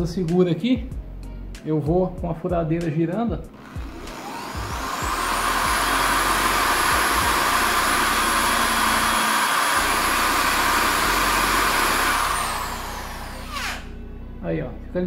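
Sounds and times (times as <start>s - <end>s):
electric drill motor whine: 3.5s - 14.0s.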